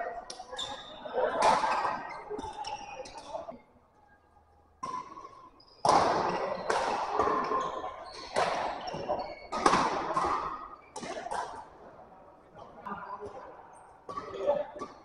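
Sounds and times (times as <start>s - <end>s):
racket hitting shuttlecock: 4.8s - 7.6s, 8.2s - 11.7s.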